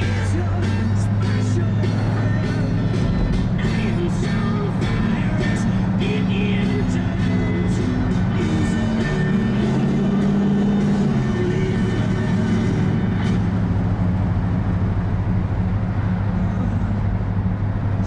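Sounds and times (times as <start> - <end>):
radio music: 0.0 - 13.5
car engine drone: 0.0 - 18.0
road and wind noise: 0.0 - 18.0.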